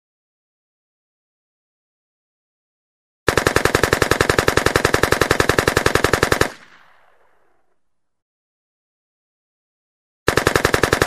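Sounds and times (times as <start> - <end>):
gunshot echo: 6.4 - 8.0.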